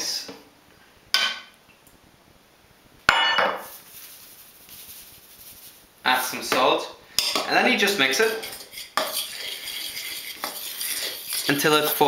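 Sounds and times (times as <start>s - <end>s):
salt shaken from a tin: 3.6s - 5.9s
utensils rattling: 8.2s - 11.8s.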